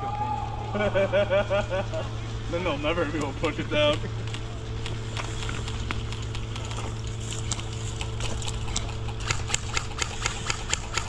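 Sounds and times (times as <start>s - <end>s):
low hum: 0.0s - 11.0s
sharp clicks: 7.5s - 11.0s.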